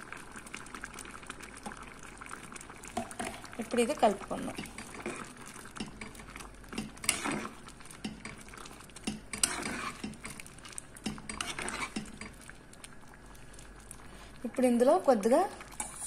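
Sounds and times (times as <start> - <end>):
ladle scraping and knocking pot: 4.5 - 8.4, 9.0 - 10.4, 11.0 - 12.4.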